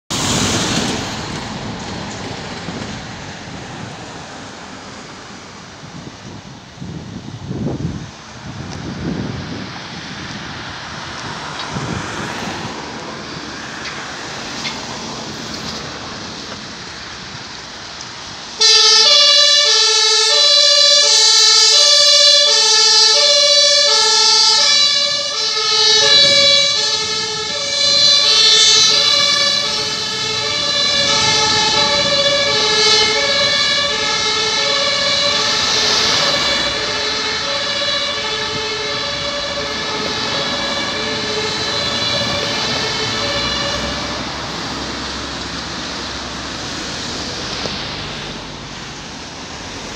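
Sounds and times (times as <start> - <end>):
street traffic noise: 0.1 - 49.9
wind on microphone: 5.0 - 17.8, 25.0 - 47.9
ambulance two-tone horn: 18.6 - 44.5.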